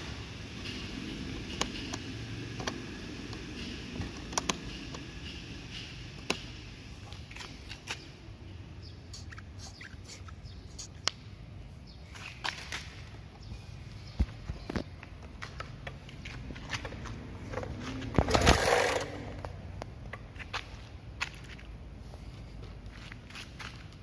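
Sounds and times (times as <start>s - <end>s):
sharp plastic clicks: 1.4s - 5.4s.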